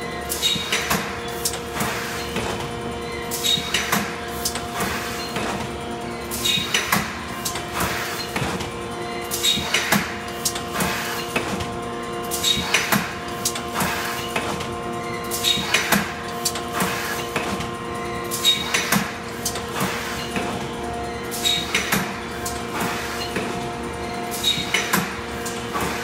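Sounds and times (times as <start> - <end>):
machine humming: 0.0 - 26.0
machine press clanks: 21.3 - 23.6.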